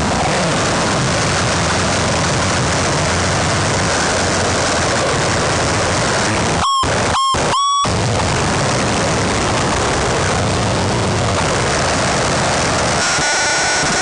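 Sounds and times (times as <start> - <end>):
rumbling electronic noise: 0.0 - 14.0
high electronic tone: 6.2 - 8.2, 12.9 - 14.0.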